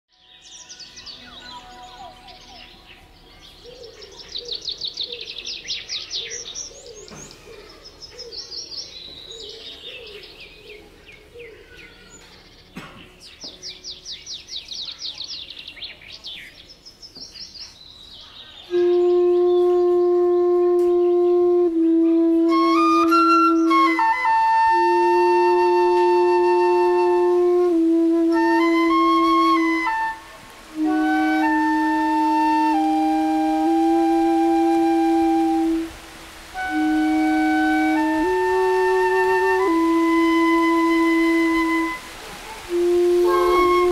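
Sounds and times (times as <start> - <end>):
songbirds singing: 0.1 - 36.0
lower bird calls: 0.1 - 43.9
held instrumental note: 18.7 - 35.9, 42.7 - 43.9.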